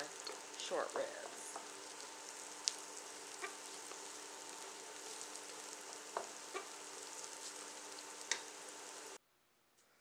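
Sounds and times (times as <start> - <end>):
onions sizzling in a pan: 0.0 - 9.2
spatula knocking on a pan: 6.0 - 6.8.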